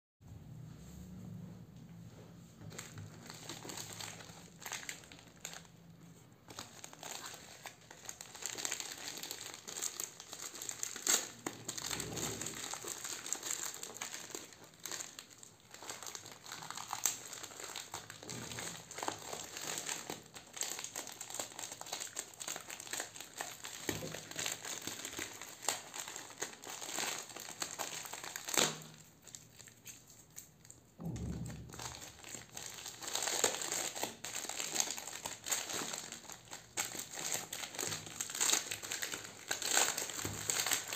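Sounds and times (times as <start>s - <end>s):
plastic mailer crinkling and tearing: 2.7s - 5.8s, 6.5s - 30.5s, 31.1s - 40.9s.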